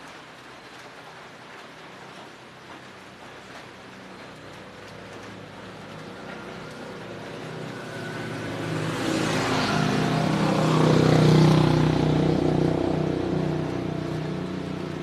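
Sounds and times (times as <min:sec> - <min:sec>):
vehicle engine passing by: 0:04.7 - 0:15.0.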